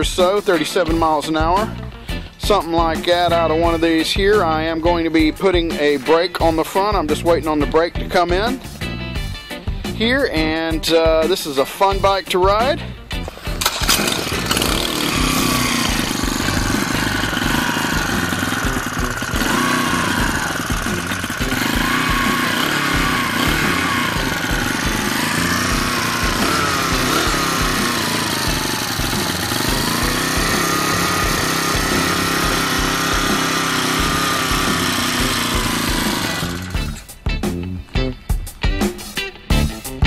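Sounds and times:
motorized bicycle engine running: 0:13.6 - 0:37.1.

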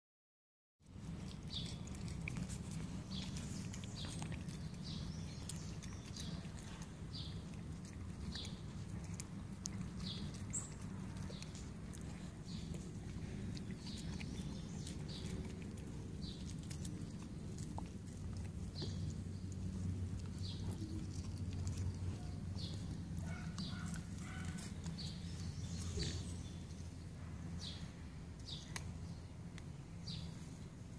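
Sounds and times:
puppy chewing watermelon rind: 0:00.8 - 0:30.9
small bird chirping: 0:01.2 - 0:27.0.

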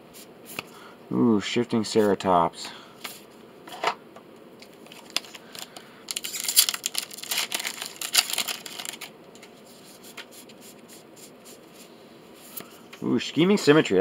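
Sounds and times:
foil wrapper tearing and crinkling: 0:04.9 - 0:09.1.

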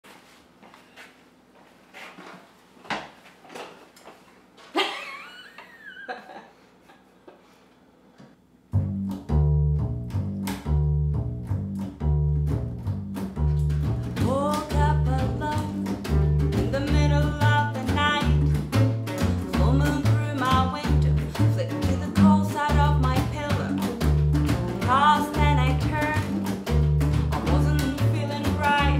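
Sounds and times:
upright bass plucking: 0:08.7 - 0:28.9
strummed guitars: 0:08.8 - 0:28.9
woman singing: 0:14.2 - 0:16.0, 0:16.6 - 0:24.0, 0:24.8 - 0:26.4, 0:27.3 - 0:28.9.

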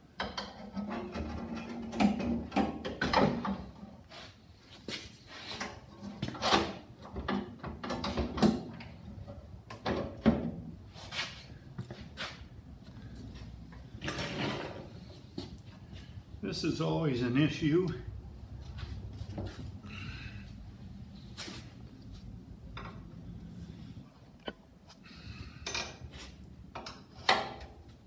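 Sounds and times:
tractor hood knocking and scraping: 0:00.2 - 0:03.8, 0:05.6 - 0:10.7.

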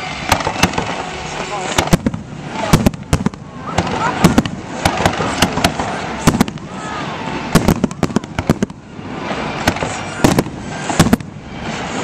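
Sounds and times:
continuous noisy background: 0:00.0 - 0:12.0
fireworks bursting bangs: 0:00.0 - 0:12.0.

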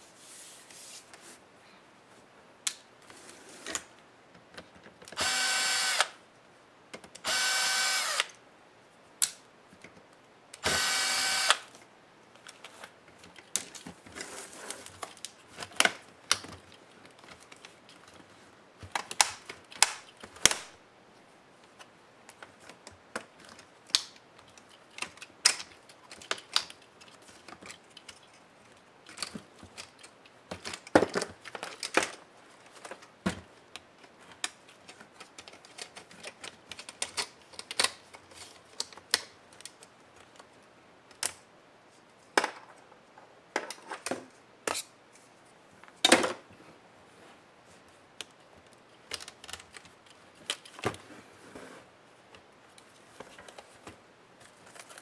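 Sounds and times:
laptop case and keyboard clicking: 0:18.8 - 0:20.6, 0:34.3 - 0:38.2, 0:49.0 - 0:50.9.

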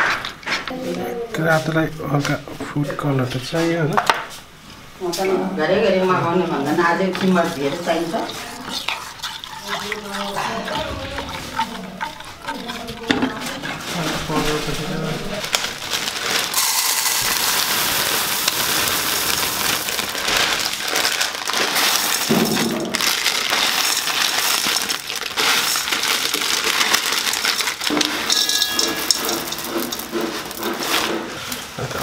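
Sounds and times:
dry food pouring into metal pot: 0:13.8 - 0:31.3.

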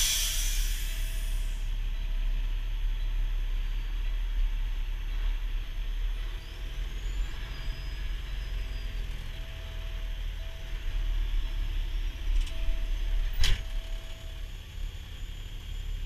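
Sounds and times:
truck engine rumbling: 0:00.0 - 0:16.0.

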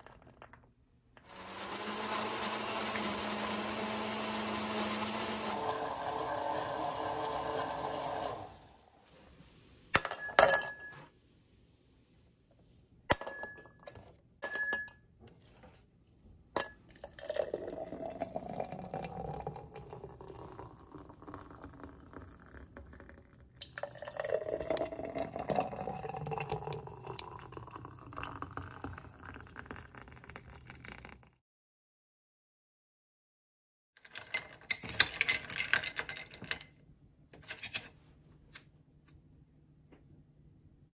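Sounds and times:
juice pouring into glass jars: 0:01.2 - 0:08.8, 0:16.8 - 0:31.4
glass clinks: 0:10.0 - 0:11.1, 0:13.1 - 0:15.1.

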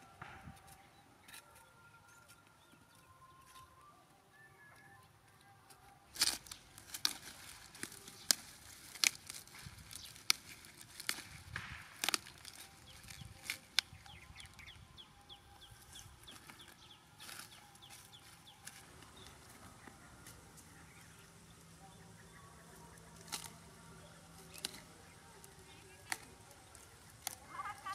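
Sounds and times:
bird chirping: 0:00.0 - 0:27.9
cauliflower stalks snapping: 0:05.7 - 0:14.8, 0:15.5 - 0:21.8, 0:22.7 - 0:27.9.

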